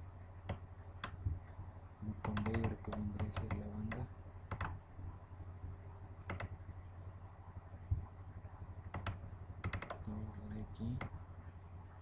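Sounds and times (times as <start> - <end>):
low electrical hum: 0.0 - 12.0
computer mouse clicks: 0.4 - 1.2, 2.2 - 4.8, 6.2 - 6.6, 8.9 - 10.1.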